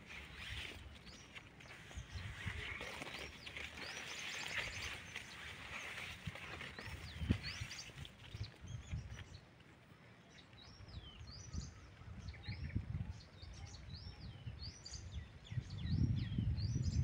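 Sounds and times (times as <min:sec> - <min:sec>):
low wind rumble: 0:10.6 - 0:17.0.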